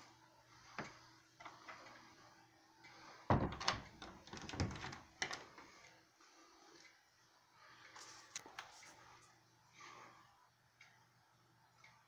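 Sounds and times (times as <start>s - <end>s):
wooden knocks and rattles: 3.3s - 5.4s.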